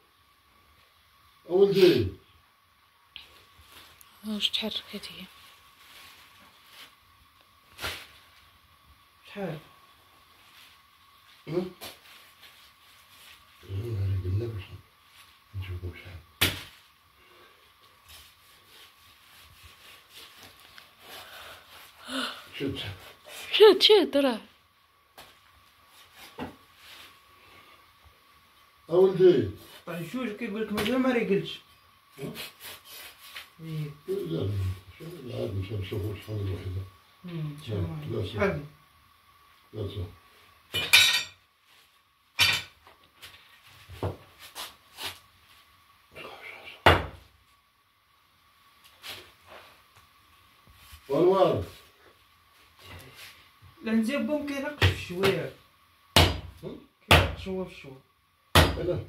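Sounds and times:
cleaver chopping bones: 56.2 - 57.4, 58.6 - 58.8.

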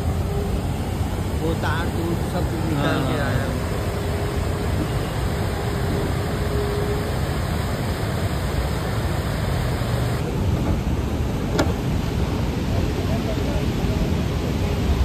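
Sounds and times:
river rushing over boulders: 0.0 - 15.0.

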